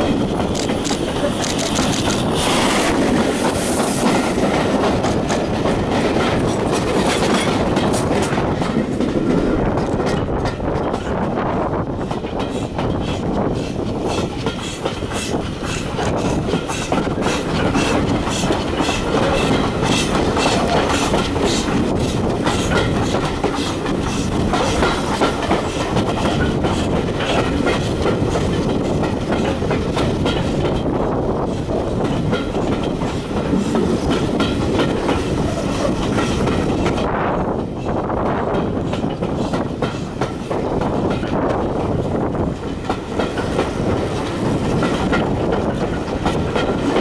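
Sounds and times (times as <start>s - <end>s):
train coaches rumbling: 0.0s - 47.0s
wheels clicking over rails: 12.0s - 31.0s.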